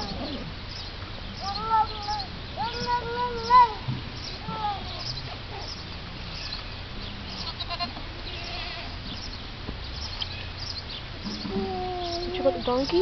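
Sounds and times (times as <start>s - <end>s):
low background noise: 0.0s - 13.0s
goats bleating: 7.3s - 9.0s.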